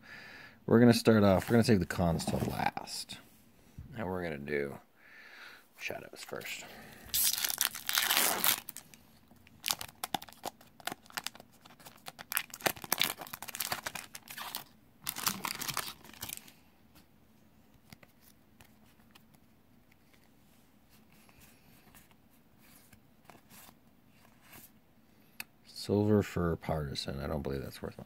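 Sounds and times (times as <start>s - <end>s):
foil wrapper tearing and crinkling: 7.1s - 8.9s, 9.5s - 16.5s.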